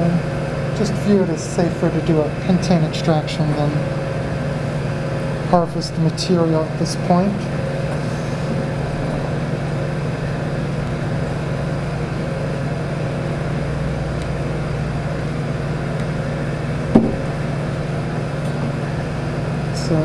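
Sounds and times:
machinery humming: 0.0 - 20.0
glass flask knock: 17.0 - 17.4.

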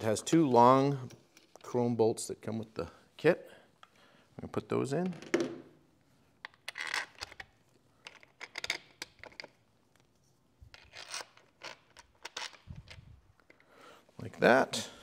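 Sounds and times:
small metal clicks and scrapes: 10.7 - 13.7.

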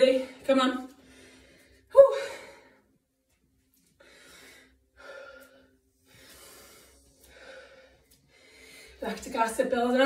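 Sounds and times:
woman breathing hard: 4.0 - 9.0.

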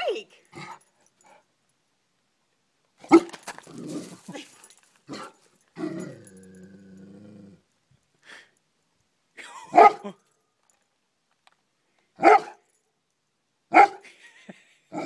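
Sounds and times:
dog barking: 3.1 - 3.3, 9.8 - 10.1, 12.2 - 12.6, 13.7 - 14.0
dog growling: 3.7 - 4.4, 5.1 - 7.7.

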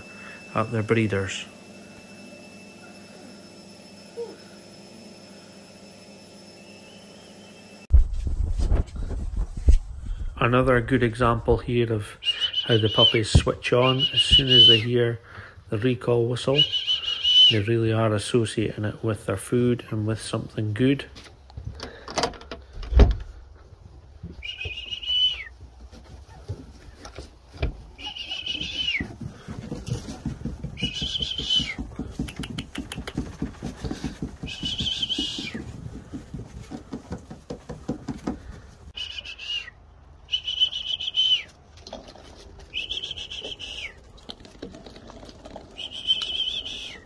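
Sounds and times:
dog whistle blast: 12.2 - 14.8, 16.6 - 17.5, 39.0 - 41.5.

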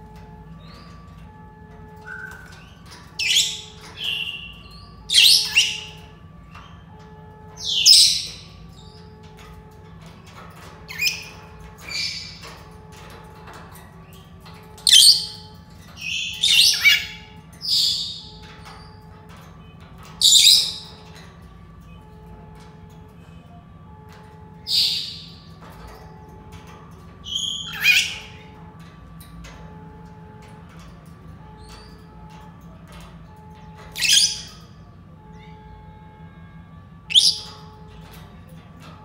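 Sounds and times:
parrots whistling and squawking: 1.9 - 6.8, 7.5 - 9.5, 10.6 - 13.6, 14.8 - 19.1, 20.0 - 21.2, 24.7 - 28.6, 33.8 - 34.6, 37.1 - 38.0.

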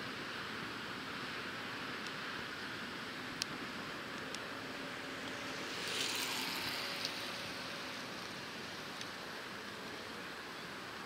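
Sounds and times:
distant propeller aircraft drone: 0.0 - 11.0
even hiss: 4.8 - 9.4.

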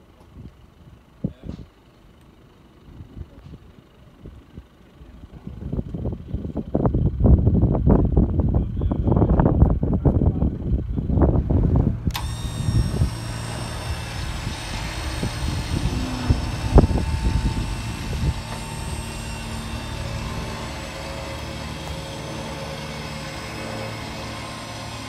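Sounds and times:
wind buffeting microphone: 2.9 - 24.9
motor humming: 11.5 - 25.0.

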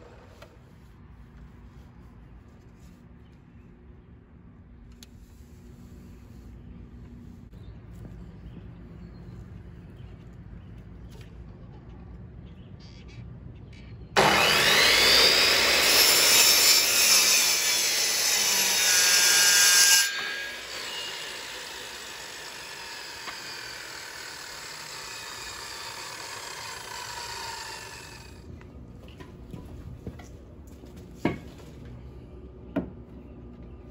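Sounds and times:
saw blade winding down: 14.2 - 28.4
miter saw cutting wood: 14.2 - 28.5.

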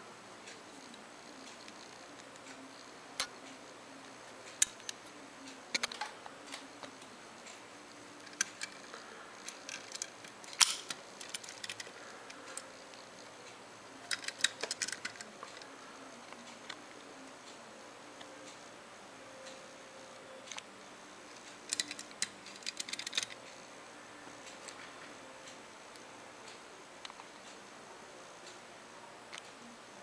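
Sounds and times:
toy cars clicking on table: 8.2 - 12.7, 14.1 - 15.6, 21.7 - 23.4.

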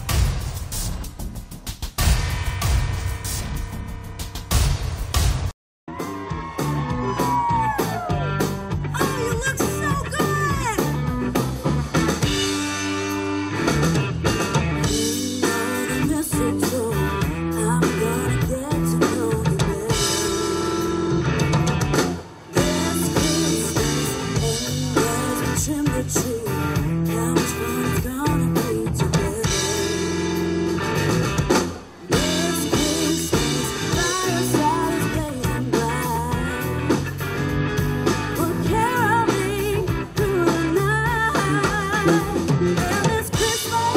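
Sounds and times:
drum kit: 0.0 - 43.9
bass guitar: 2.0 - 43.9
electric guitar: 5.9 - 43.9
woman singing into a microphone: 14.9 - 20.7, 22.6 - 30.0, 32.1 - 36.7, 38.4 - 43.9.

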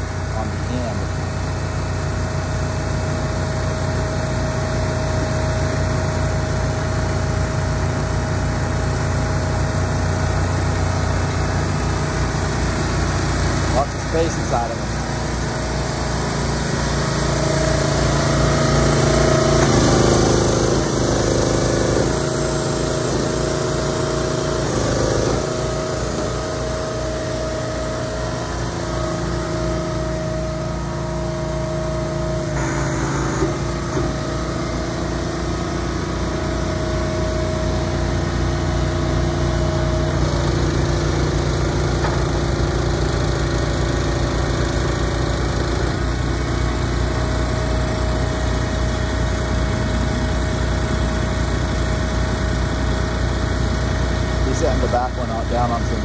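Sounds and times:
engine running steadily: 0.0 - 56.0.

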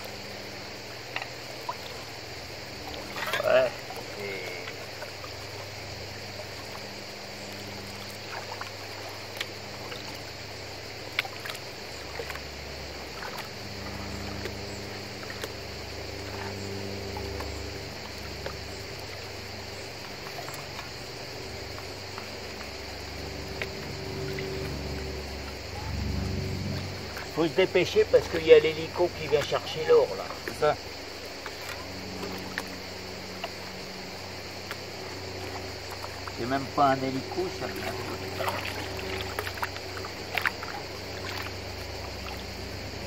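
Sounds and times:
aircraft engine drone: 0.0 - 43.0
shallow river water trickling: 0.0 - 43.0.

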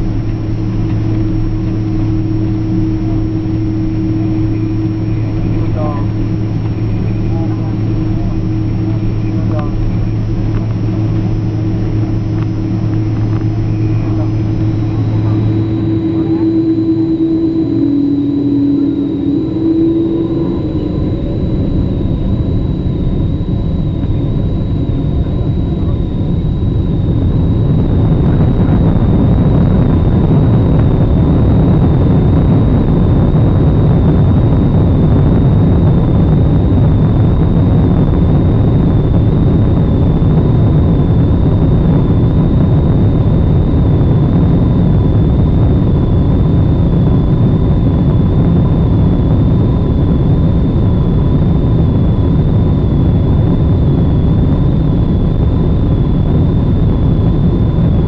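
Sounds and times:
runway rumble: 0.0 - 31.8
faint high tones: 0.0 - 44.7
jet engines at take-off thrust: 0.0 - 58.0.

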